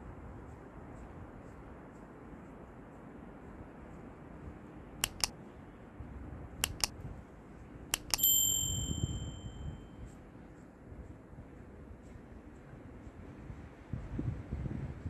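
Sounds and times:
mouse double clicks: 5.0s - 5.3s, 6.6s - 6.9s, 7.9s - 8.3s
bell ding: 8.0s - 10.0s.

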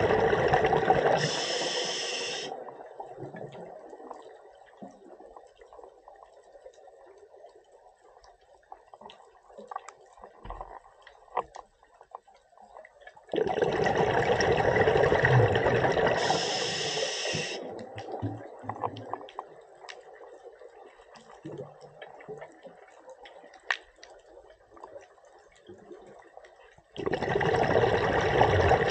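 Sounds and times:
exhaled bubbles rushing: 0.0s - 1.4s, 13.3s - 16.5s, 27.0s - 28.9s
faint underwater crackling: 0.0s - 28.9s.

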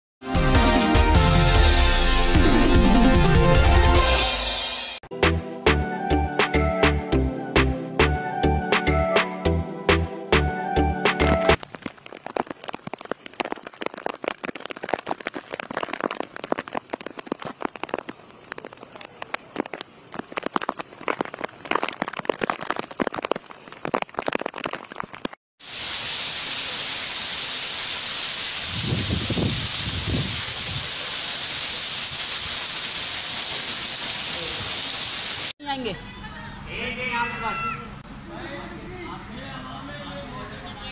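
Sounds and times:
rain drops on hard surface: 11.3s - 35.6s
downpour hiss: 11.8s - 22.1s, 25.6s - 35.6s.

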